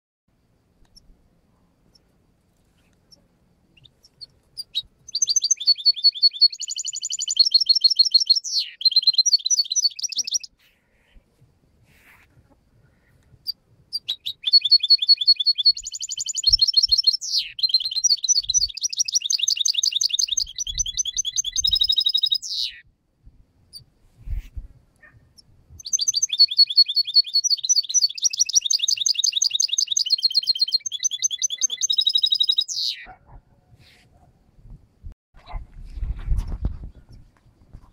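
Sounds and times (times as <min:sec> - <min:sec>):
finch twittering song: 0:03.1 - 0:10.6, 0:13.4 - 0:22.8, 0:25.4 - 0:33.2.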